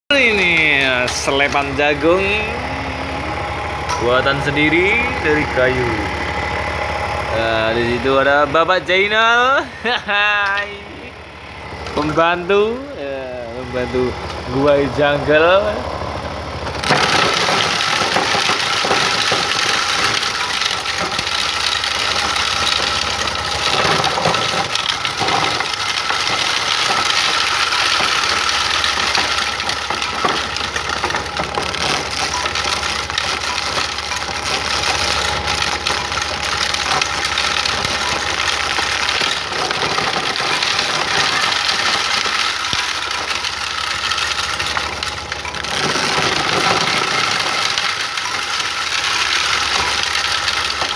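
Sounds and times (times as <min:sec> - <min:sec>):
corn sheller machine running: 0:00.0 - 0:50.9.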